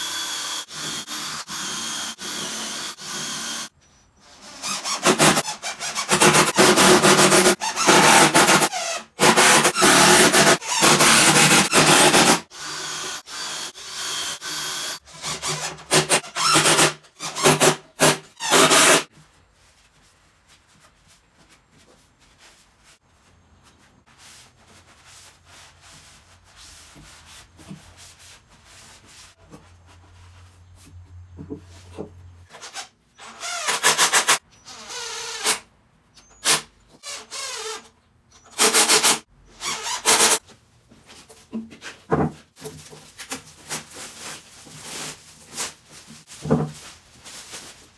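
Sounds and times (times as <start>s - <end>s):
cordless drill bursts: 0.0s - 3.7s, 4.4s - 19.0s, 38.6s - 40.4s.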